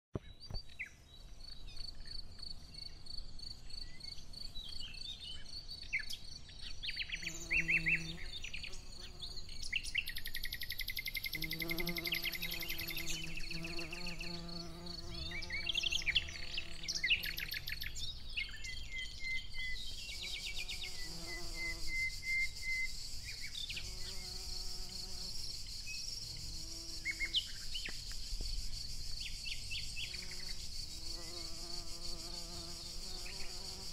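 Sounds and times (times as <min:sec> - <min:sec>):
flying insects buzzing: 0:07.2 - 0:09.6, 0:11.2 - 0:17.8, 0:20.0 - 0:33.9.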